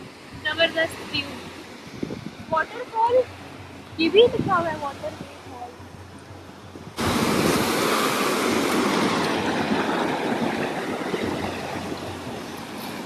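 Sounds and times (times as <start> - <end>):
stream rushing over rocks: 6.9 - 13.0.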